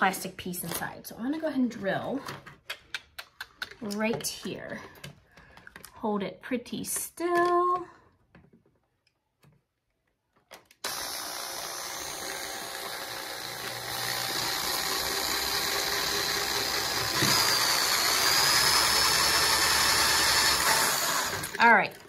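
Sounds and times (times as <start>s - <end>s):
electric drill boring plastic: 10.8s - 22.0s.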